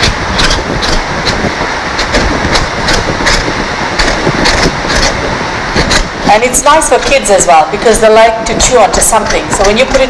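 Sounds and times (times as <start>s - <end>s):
microphone distortion noise: 0.0s - 10.0s.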